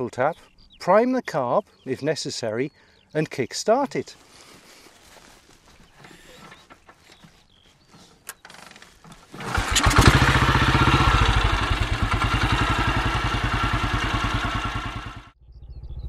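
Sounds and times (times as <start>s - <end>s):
motorcycle engine revving and idling: 8.5s - 15.4s
kick-start clicks: 9.3s - 11.8s.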